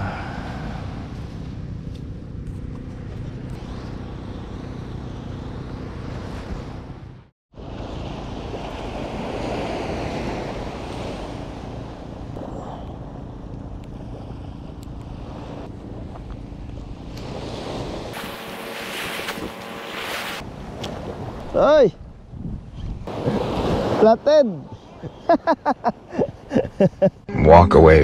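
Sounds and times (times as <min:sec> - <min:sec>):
small waves breaking on shore: 0:03.6 - 0:21.9, 0:23.1 - 0:24.6
wind buffeting microphone: 0:20.4 - 0:24.0.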